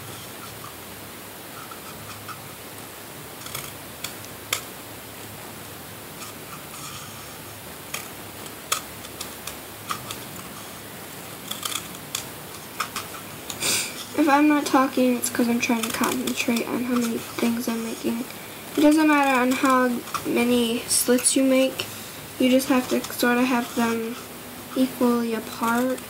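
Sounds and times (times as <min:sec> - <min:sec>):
steady background hiss: 0:00.0 - 0:26.0
scissors snipping: 0:14.6 - 0:20.4.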